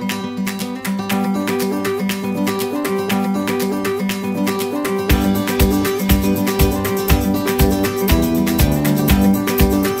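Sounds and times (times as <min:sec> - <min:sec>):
guitar-led background music: 0:00.0 - 0:10.0
steady beat: 0:02.9 - 0:10.0.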